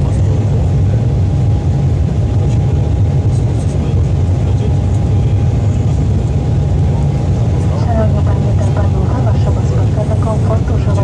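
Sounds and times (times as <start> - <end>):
jet engine low rumble: 0.0 - 11.0
thin steady whine: 0.0 - 11.0.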